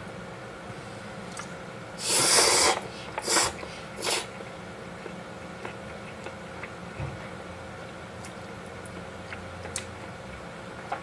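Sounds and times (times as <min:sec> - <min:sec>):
person slurping noodles: 0:02.0 - 0:04.3.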